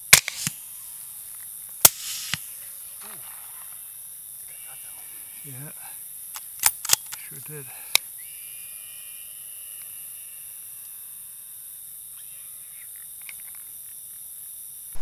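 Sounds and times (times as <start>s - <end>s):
high-pitched hiss: 0.0s - 8.4s
short faint calls: 2.0s - 6.2s.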